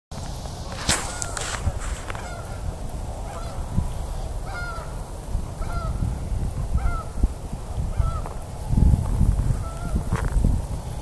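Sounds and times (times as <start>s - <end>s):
geese honking: 0.7s - 6.1s, 7.9s - 8.4s.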